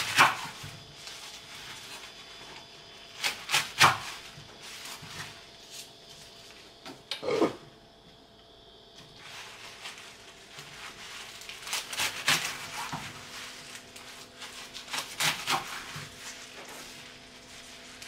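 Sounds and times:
knife chopping greens on wooden board: 0:00.0 - 0:00.7, 0:03.2 - 0:04.2, 0:14.8 - 0:16.3.

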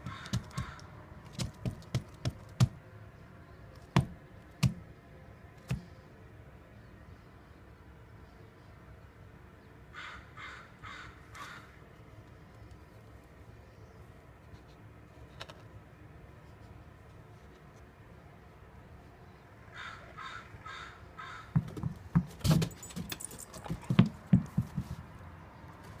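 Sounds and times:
crow cawing: 0:00.0 - 0:00.9, 0:09.9 - 0:11.7, 0:19.7 - 0:21.6
dog paws on wooden steps: 0:00.0 - 0:02.7, 0:21.6 - 0:25.1.

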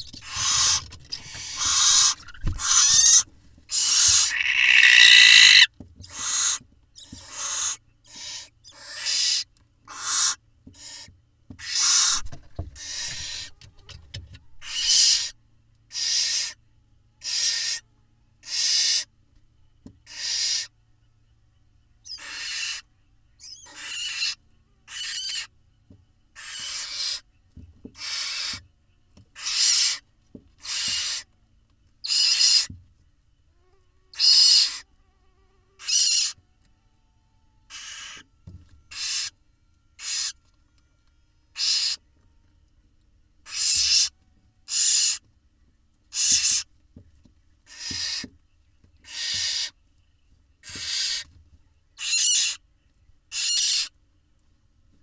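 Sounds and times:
owl nestlings rasping calls: 0:00.2 - 0:11.0, 0:11.6 - 0:12.2, 0:14.6 - 0:15.3, 0:20.1 - 0:20.7, 0:22.1 - 0:22.8, 0:23.4 - 0:25.5, 0:26.4 - 0:27.2, 0:28.0 - 0:28.5, 0:29.4 - 0:30.0, 0:30.6 - 0:31.2, 0:32.0 - 0:32.7, 0:34.2 - 0:34.8, 0:35.8 - 0:36.4, 0:37.7 - 0:38.2, 0:38.9 - 0:39.3, 0:40.0 - 0:40.4, 0:41.6 - 0:42.0, 0:43.4 - 0:44.1, 0:44.7 - 0:45.2, 0:46.1 - 0:46.6, 0:47.7 - 0:48.2, 0:49.0 - 0:49.7, 0:50.6 - 0:51.2, 0:52.0 - 0:52.6, 0:53.3 - 0:53.9.

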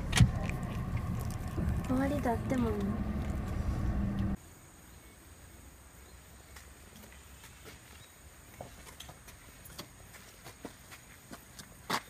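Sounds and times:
car interior rumble: 0:00.0 - 0:04.4.

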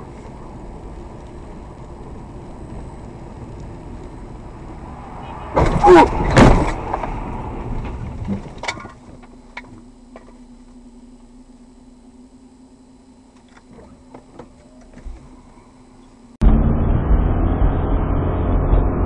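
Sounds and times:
low steady hum: 0:00.0 - 0:17.0
car cabin road noise: 0:00.0 - 0:19.0
car crashing into barriers: 0:05.5 - 0:09.0.

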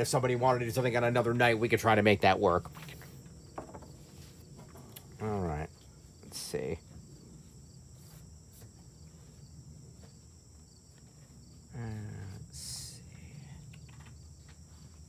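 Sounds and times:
crickets chirping: 0:00.0 - 0:15.0
man's low voice: 0:11.7 - 0:13.4.

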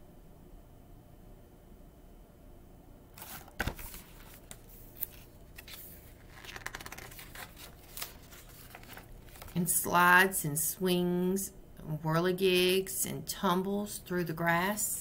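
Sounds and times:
handling noise rustles and scrapes: 0:03.2 - 0:09.7.

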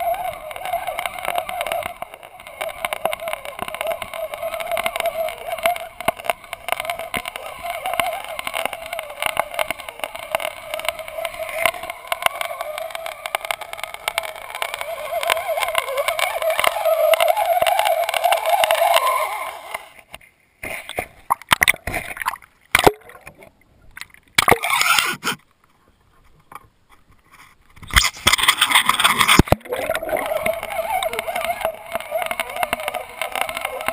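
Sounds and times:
water splashes and sloshes: 0:00.0 - 0:25.4
muffled underwater water rush: 0:00.0 - 0:26.6, 0:27.4 - 0:33.9
small clicks and knocks: 0:00.0 - 0:33.9.

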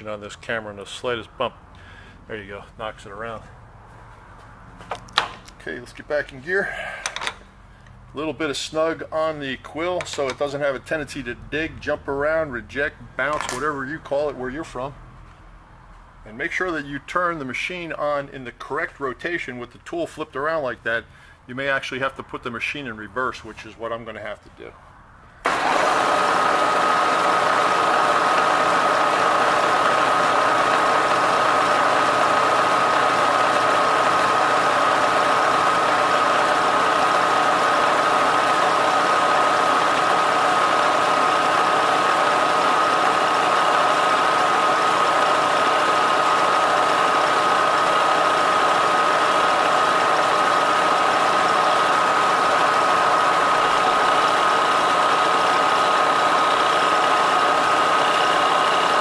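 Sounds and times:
milling machine whining: 0:25.5 - 0:59.0.

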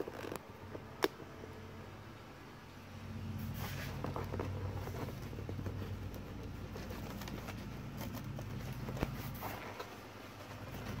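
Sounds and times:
low steady hum: 0:00.0 - 0:11.0
cardboard box rustling: 0:03.4 - 0:11.0.

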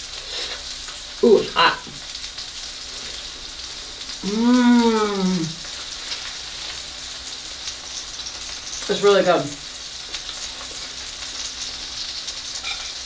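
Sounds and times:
meat sizzling on hot stone: 0:00.0 - 0:13.0
woman humming: 0:04.2 - 0:05.6.

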